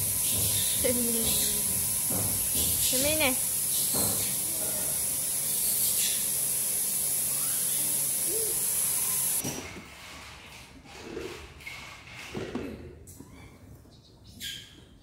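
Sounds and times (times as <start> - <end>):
high-pitched hiss: 0.0 - 9.4.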